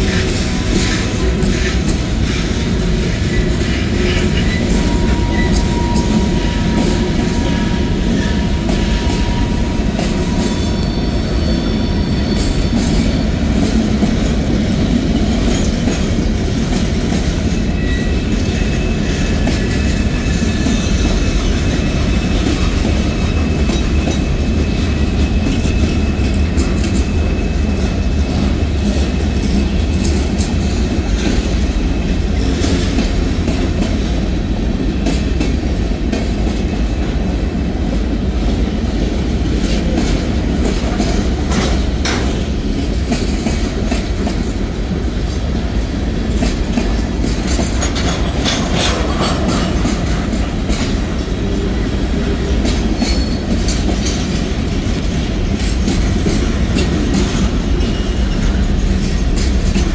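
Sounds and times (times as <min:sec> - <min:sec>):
train wheels rumbling on rails: 0:00.0 - 0:59.9
high wheel squeals: 0:04.0 - 0:13.6, 0:17.6 - 0:20.7.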